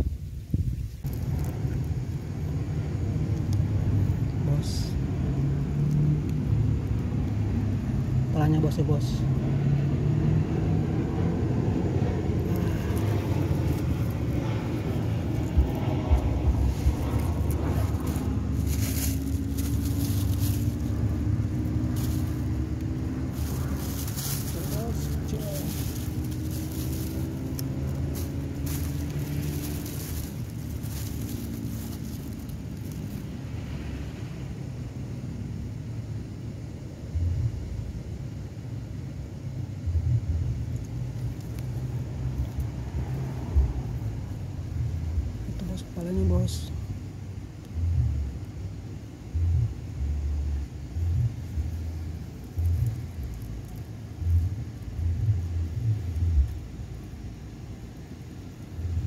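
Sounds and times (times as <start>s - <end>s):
wind buffeting microphone: 0.0s - 3.8s, 10.7s - 32.7s
engine humming: 0.0s - 59.0s.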